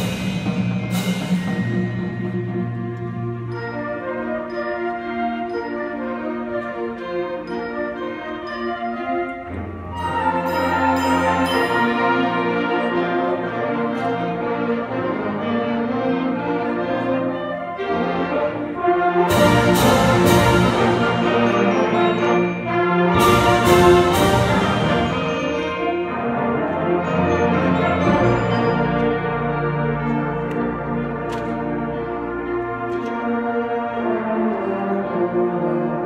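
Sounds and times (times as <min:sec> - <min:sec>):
loud accented band hits: 0:00.0 - 0:02.8.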